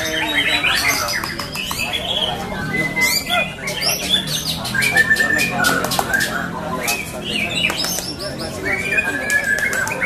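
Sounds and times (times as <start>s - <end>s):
songbird whistling and clicking: 0.7s - 2.2s, 4.2s - 10.0s.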